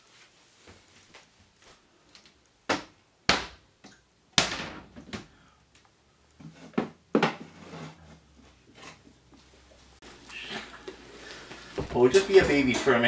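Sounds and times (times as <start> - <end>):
household knocks and thuds: 4.4 - 5.3, 6.4 - 7.6.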